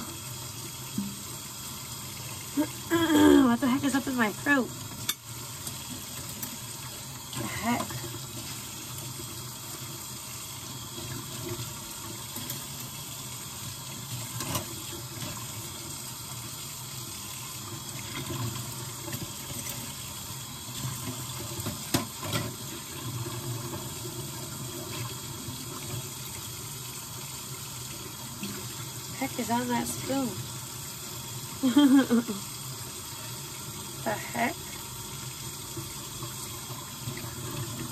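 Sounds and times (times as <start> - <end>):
tap running into sink: 0.8 - 1.5, 20.8 - 23.9.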